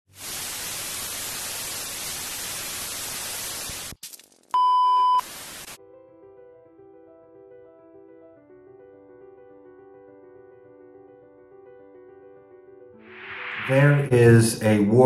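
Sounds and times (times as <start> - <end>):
static crackle: 0.1 - 5.8
television static hiss: 0.2 - 4.0, 5.2 - 5.8
test-tone beep: 4.6 - 5.2
soft piano music: 5.8 - 13.1.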